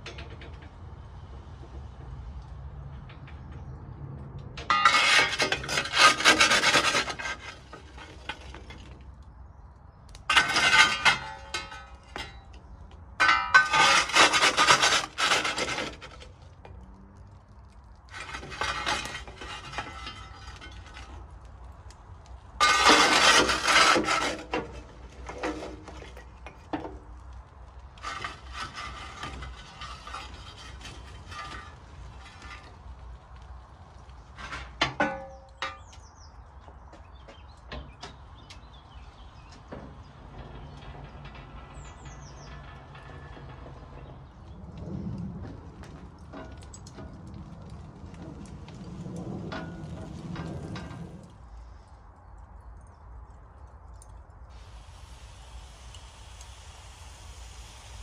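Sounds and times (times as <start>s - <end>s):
scraping or rubbing: 4.7s - 8.8s, 10.3s - 12.3s, 13.2s - 16.4s, 18.1s - 21.2s, 22.6s - 26.3s, 28.0s - 32.8s.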